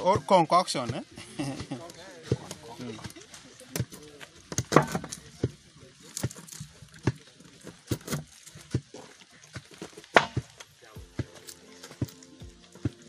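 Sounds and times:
knife chopping on wood: 3.8 - 5.6, 10.1 - 10.6.

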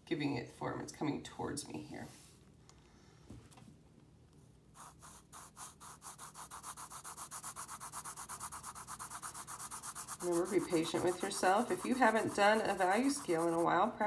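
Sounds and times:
pencil scratching on paper: 4.8 - 14.0.

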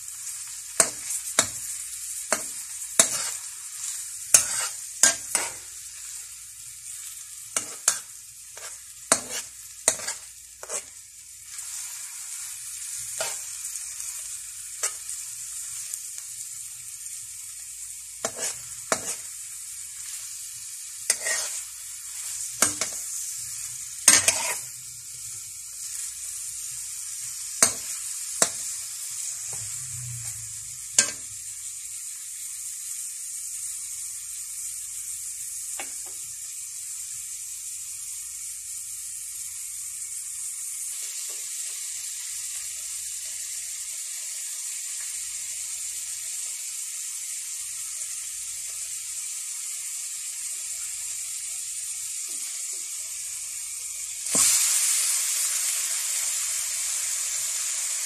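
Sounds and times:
onions sizzling in hot oil: 0.0 - 58.0
metal spatula scraping wok: 0.8 - 6.3, 7.0 - 12.0, 12.8 - 13.6, 14.2 - 15.2, 18.2 - 19.4, 21.0 - 24.8, 27.6 - 31.5.

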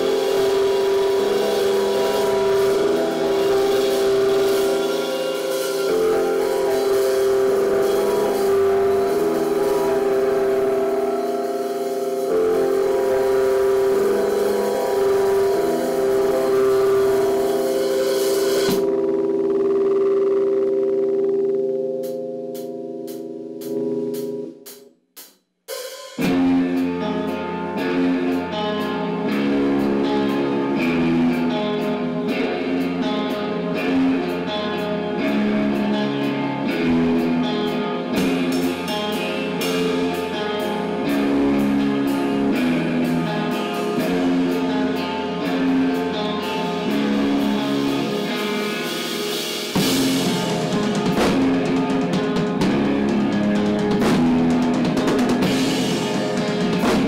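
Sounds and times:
cymbal crashing: 0.0 - 18.8
drum kit: 0.0 - 19.7, 22.0 - 30.2, 38.1 - 57.0
electric guitar riff: 0.0 - 24.0, 26.2 - 57.0
bass guitar: 0.0 - 24.5, 26.2 - 57.0.

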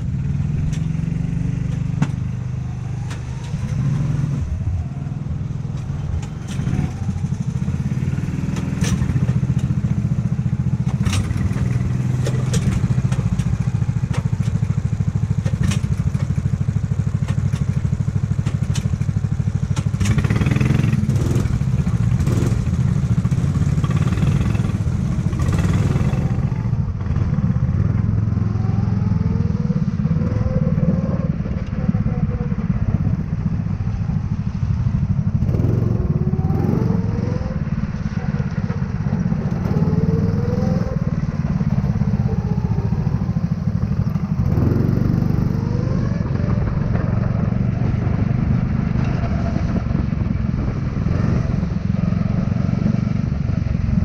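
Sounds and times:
go-kart engine running: 0.0 - 54.0
sharp clicks and knocks: 1.6 - 2.2, 3.0 - 3.8, 5.7 - 7.0, 8.4 - 9.9, 10.8 - 16.5, 17.1 - 22.8.

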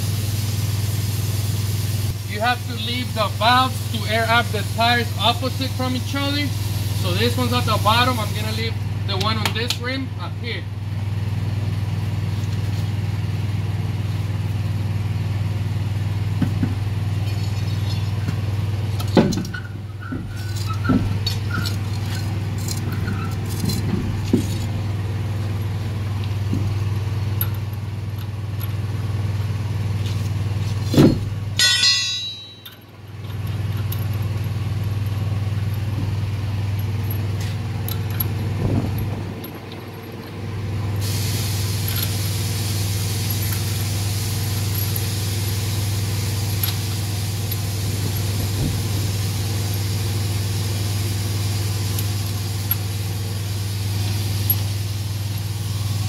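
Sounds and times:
low machine hum: 0.0 - 56.0
metallic clinks of lug nuts: 19.0 - 24.7, 25.6 - 29.0, 30.6 - 40.5, 41.7 - 42.3, 43.1 - 43.9, 46.6 - 48.3, 51.9 - 53.0.

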